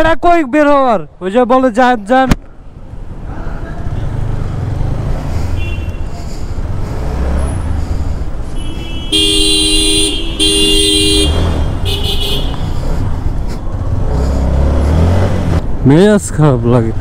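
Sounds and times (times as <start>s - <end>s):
engine rumble: 2.4s - 17.0s
low two-tone horn blasts: 8.5s - 12.7s.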